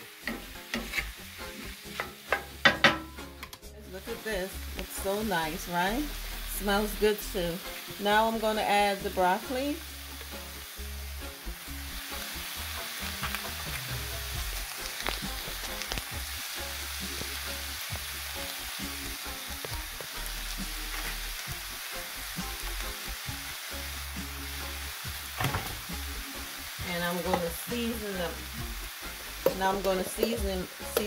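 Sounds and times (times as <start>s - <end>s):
vegetables sizzling in oil: 0.0s - 31.0s
vegetable pieces landing in pan: 25.4s - 25.9s.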